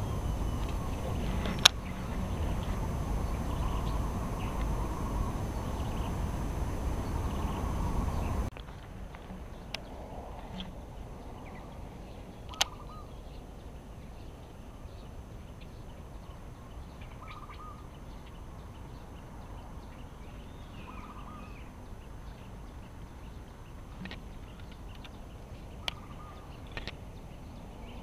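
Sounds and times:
bird trilling call: 0.0 - 8.5, 9.5 - 19.0, 20.3 - 21.8, 24.4 - 26.9
faint bird chirps: 0.0 - 28.0
low background rumble: 0.0 - 28.0.

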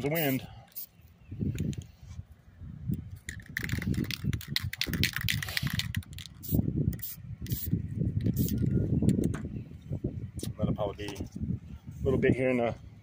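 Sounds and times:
wind buffeting microphone: 1.2 - 13.0
spray paint can hissing: 3.3 - 8.6.

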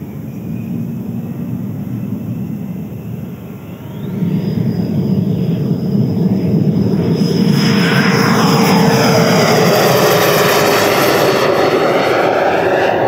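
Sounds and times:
electric ducted fan whine: 0.0 - 13.0
jet rushing roar: 0.0 - 13.0.

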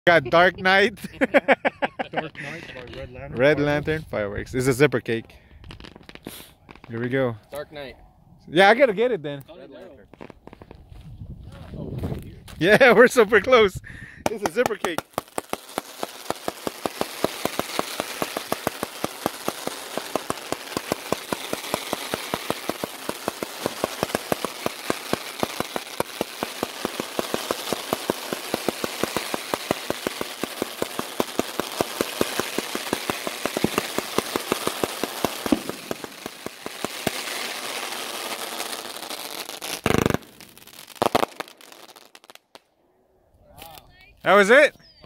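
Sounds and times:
firework hiss: 5.6 - 6.9, 14.2 - 42.5
firework cake sharp pops: 5.6 - 7.1, 10.1 - 10.8, 14.2 - 42.7.

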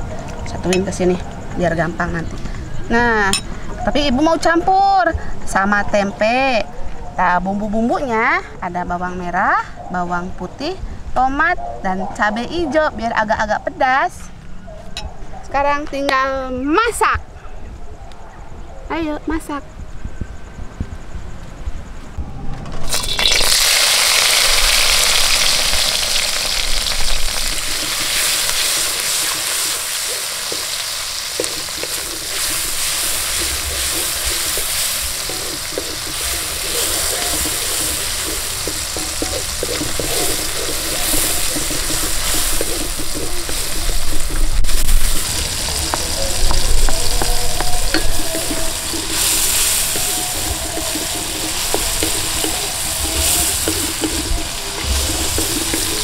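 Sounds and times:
food sizzling in hot oil: 22.8 - 56.0
spatula scraping a wok: 24.7 - 56.0.

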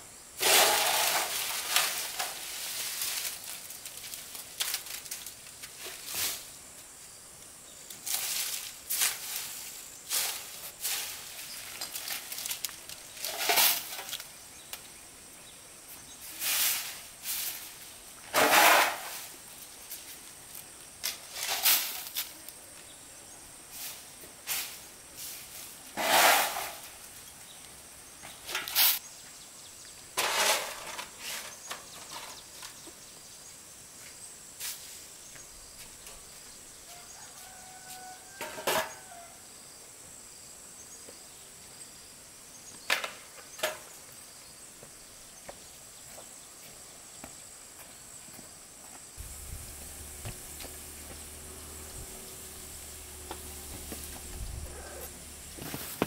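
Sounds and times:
scraper scraping concrete floor: 0.4 - 4.8, 16.3 - 19.4, 23.8 - 26.9, 30.2 - 32.4, 49.2 - 56.0
broom sweeping concrete floor: 0.4 - 6.6, 7.9 - 14.4, 15.9 - 22.5, 23.6 - 27.2, 28.3 - 29.0, 30.2 - 32.8, 34.0 - 36.4, 37.2 - 38.9, 49.2 - 56.0.

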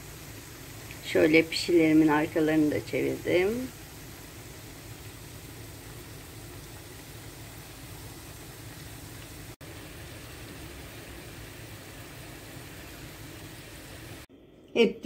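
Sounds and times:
oil sizzling around frying dough: 0.0 - 14.3.

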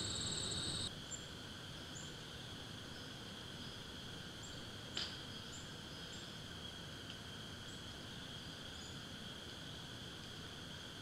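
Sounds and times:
high insect drone: 0.0 - 4.5.

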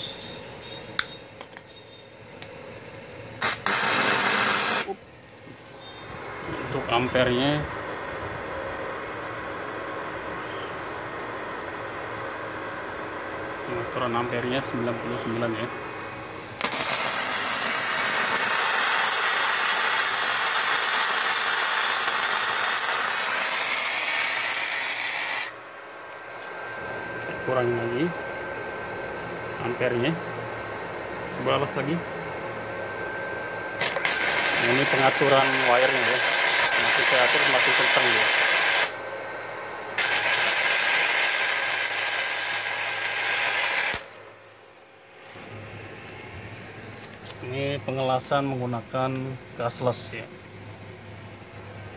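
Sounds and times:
welding arc noise: 3.4 - 5.1, 16.4 - 25.6, 33.8 - 39.1, 39.9 - 44.2.

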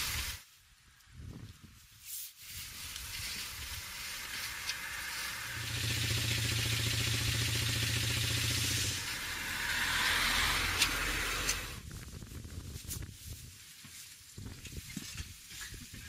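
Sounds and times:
hissing rustling outdoor noise: 0.0 - 16.0
car engine running: 5.1 - 11.8.

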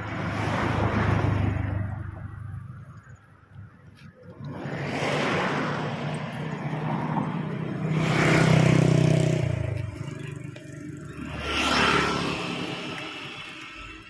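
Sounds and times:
vehicle passing by: 4.4 - 13.7.

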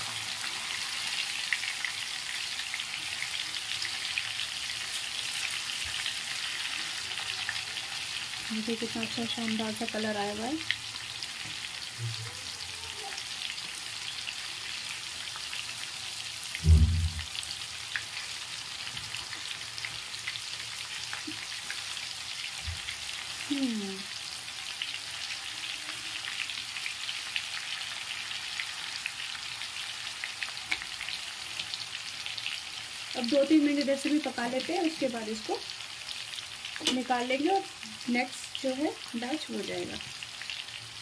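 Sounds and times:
fish sizzling in hot oil: 0.0 - 41.0
dull thump: 16.6 - 17.2.

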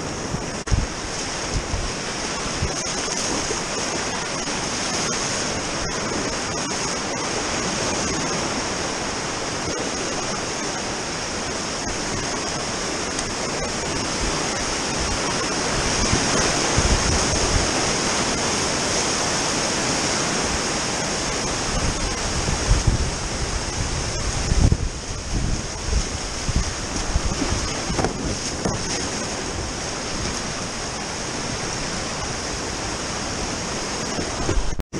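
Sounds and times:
river rapids rushing: 0.0 - 34.8
dull low buffeting thumps: 0.2 - 1.9.

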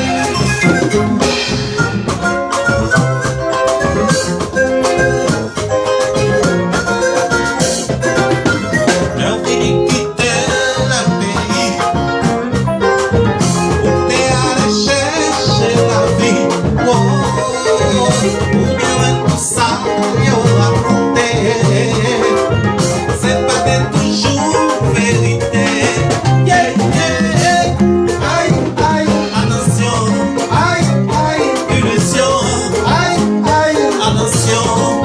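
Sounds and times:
live band playing: 0.0 - 35.0
man singing into a microphone: 8.9 - 12.3, 13.8 - 35.0.

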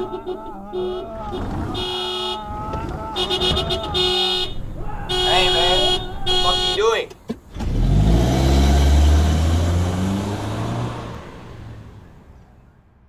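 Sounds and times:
car engine revving: 0.0 - 6.8, 7.4 - 12.4.

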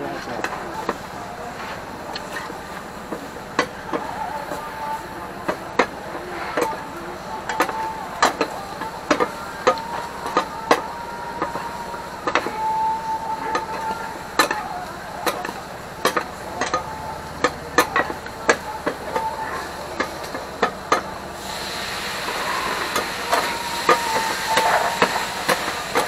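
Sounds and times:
spatulas clanking on griddle: 0.2 - 26.0.

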